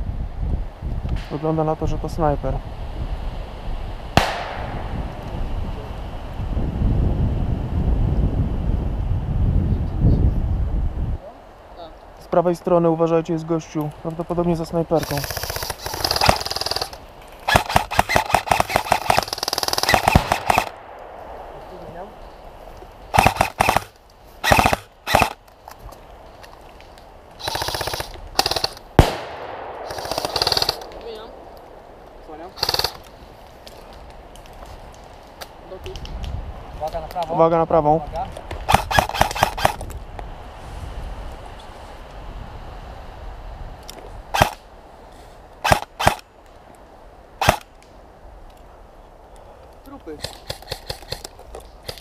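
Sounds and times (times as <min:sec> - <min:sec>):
single sharp gunshot crack: 0:04.2 - 0:04.8, 0:29.0 - 0:31.0
airsoft rifles automatic fire: 0:15.0 - 0:20.8, 0:23.1 - 0:25.4, 0:27.4 - 0:30.9, 0:32.6 - 0:33.0, 0:38.7 - 0:39.8, 0:47.4 - 0:47.6.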